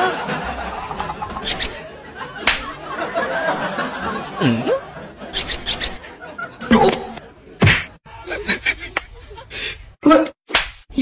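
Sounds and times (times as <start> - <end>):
laughter and snickering: 0.0 - 5.4, 6.0 - 9.8
sharp slap: 2.4 - 2.7, 7.6 - 8.0, 10.5 - 10.9.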